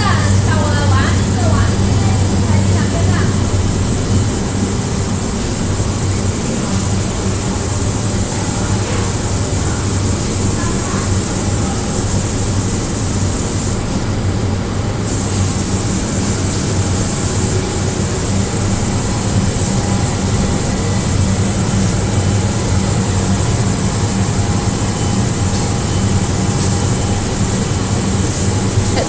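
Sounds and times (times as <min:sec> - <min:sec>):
low electric hum: 0:00.0 - 0:29.0
high hiss: 0:14.9 - 0:29.0.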